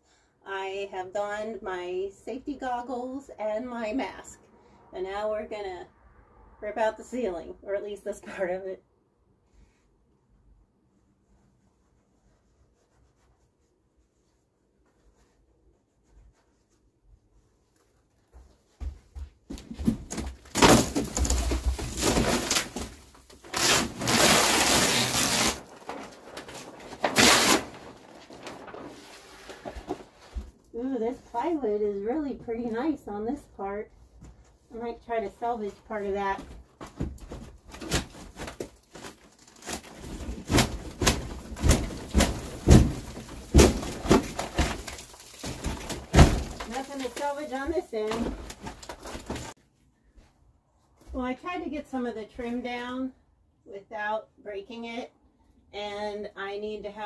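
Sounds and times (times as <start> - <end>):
ceiling panelling cracking and ripping: 20.0 - 30.2, 37.1 - 49.6
debris falling: 39.8 - 49.5.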